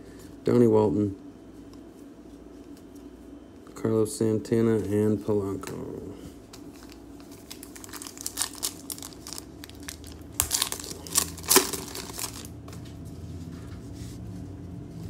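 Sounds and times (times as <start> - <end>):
foil wrapper crinkling and tearing: 6.6 - 12.6.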